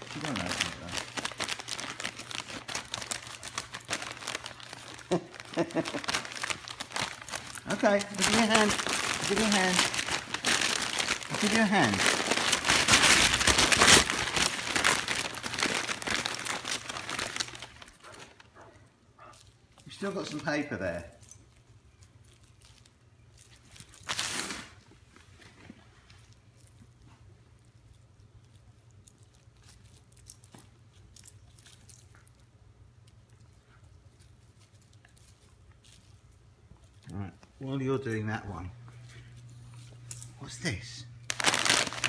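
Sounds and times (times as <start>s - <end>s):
dog tugging plush toy rustling: 0.0s - 18.4s
wrapping paper tearing and crumpling: 0.0s - 18.4s, 22.3s - 25.0s, 41.3s - 42.0s.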